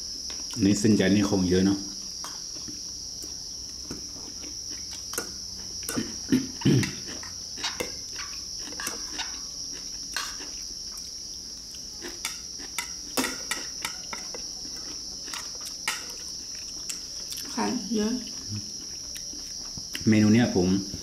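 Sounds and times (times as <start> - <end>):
crickets chirring: 0.0 - 21.0
chewing and mouth noises: 2.6 - 11.1, 13.6 - 17.6, 18.3 - 20.1
cutlery scraping ceramic bowls: 8.7 - 9.3.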